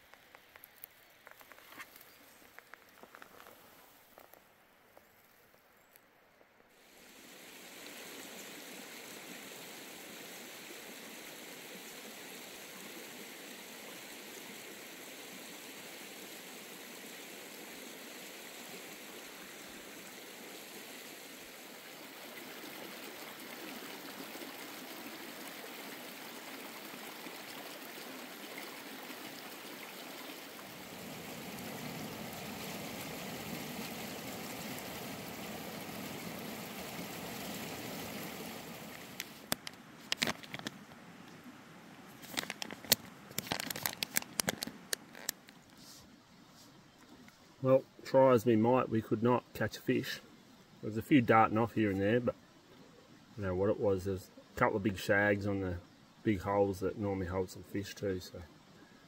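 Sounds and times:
stream water rushing: 6.8 - 45.6.

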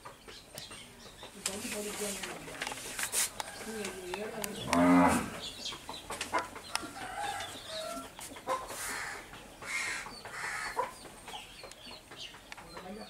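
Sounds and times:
chickens clucking: 0.0 - 13.0
short hissy noises: 1.6 - 3.4.

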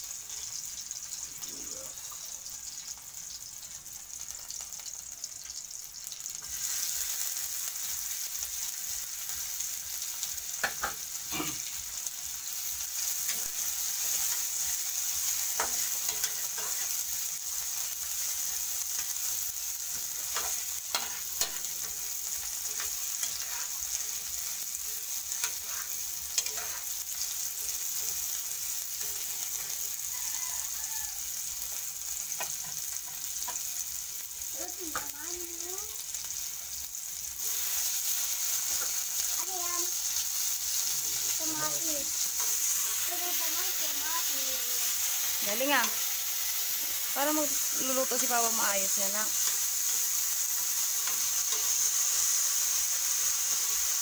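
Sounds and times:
onions sizzling in hot oil: 0.0 - 54.0
spatula scraping a pan: 13.2 - 17.1, 19.8 - 30.0.

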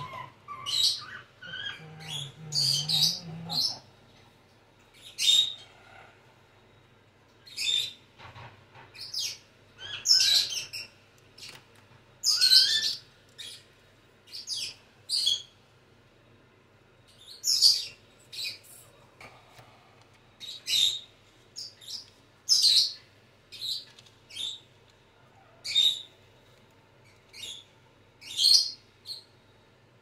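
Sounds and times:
bird chirping: 0.0 - 3.9, 12.2 - 15.6, 20.4 - 26.2, 27.0 - 29.4.

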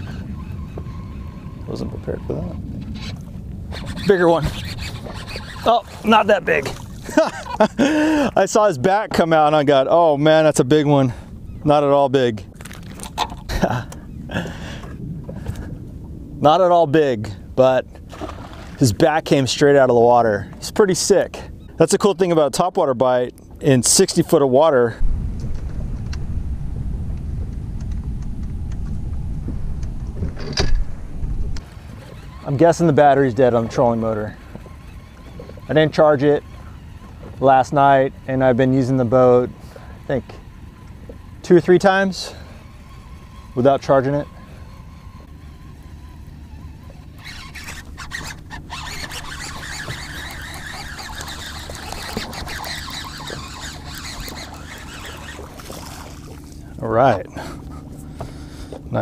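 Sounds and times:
fishing reel ticking whir: 0.0 - 8.6, 31.6 - 58.8
low steady hum: 0.0 - 59.0
electric motor low rumble: 25.0 - 59.0.

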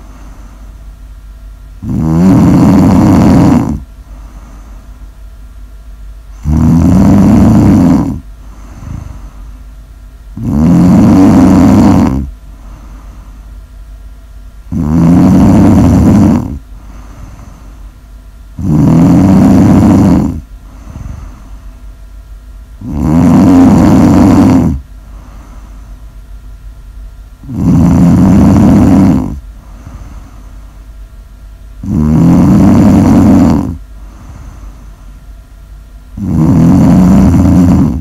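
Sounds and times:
person snoring loudly: 1.8 - 4.7, 6.4 - 9.4, 10.4 - 13.2, 14.7 - 17.8, 18.6 - 21.6, 22.8 - 25.7, 27.4 - 30.5, 31.8 - 34.9, 36.2 - 38.0.

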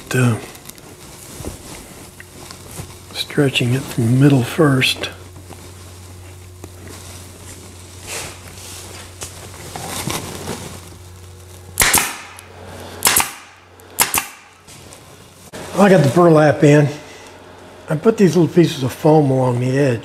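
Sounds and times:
burlap rustling: 0.7 - 3.1, 5.3 - 11.5
staple gun firing: 11.8 - 12.4, 13.0 - 14.5.

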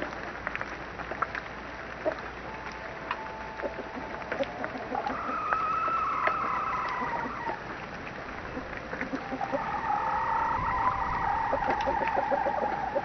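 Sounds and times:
chicken drawn-out call: 3.6 - 7.7, 8.5 - 13.0
chickens clucking softly: 8.5 - 9.8, 11.5 - 13.0.

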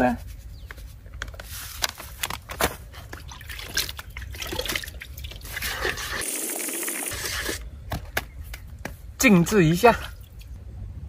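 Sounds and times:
handling clicks and rustles: 0.6 - 3.3.

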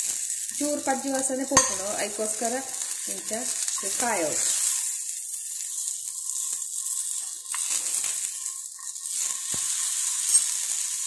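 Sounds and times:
tomato sizzling in a pan: 0.0 - 11.0
spoon clicking against pan: 1.6 - 1.9.

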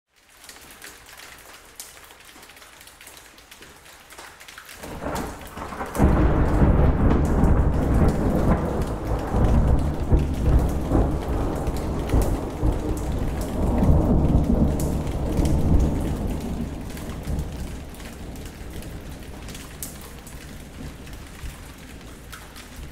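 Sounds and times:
steady rain: 0.1 - 22.9
deep rumble of thunder: 4.8 - 21.6.

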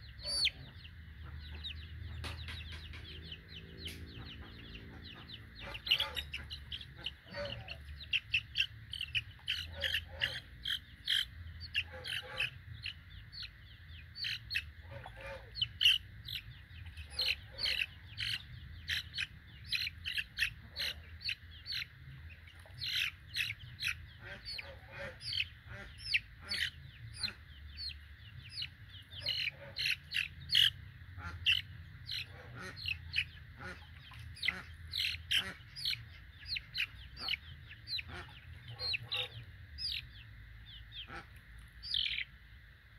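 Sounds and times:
chicks peeping: 0.0 - 42.3.

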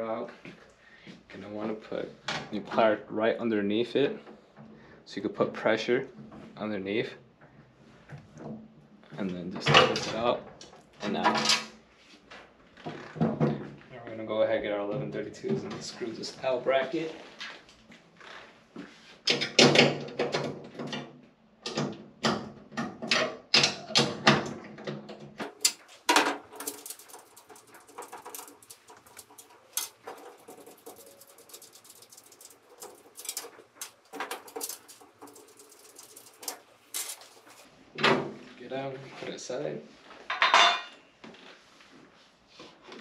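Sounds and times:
metal clicks and scrapes of tools: 25.4 - 37.7.

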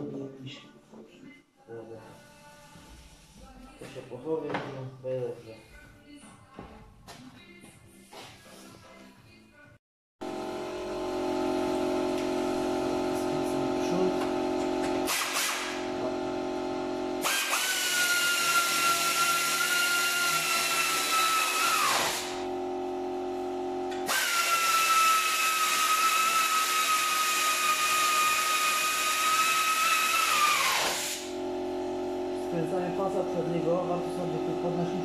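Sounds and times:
power tool motor whine: 10.2 - 32.5.

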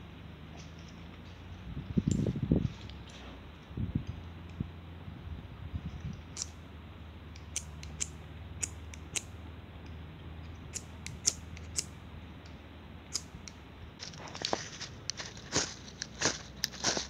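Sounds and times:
twigs snapping: 13.2 - 17.0
crackling and rustling: 14.0 - 17.0.

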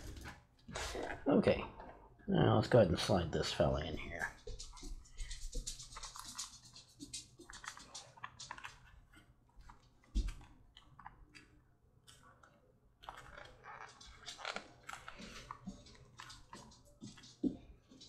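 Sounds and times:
wet leather creaking and clicking: 13.0 - 15.7.

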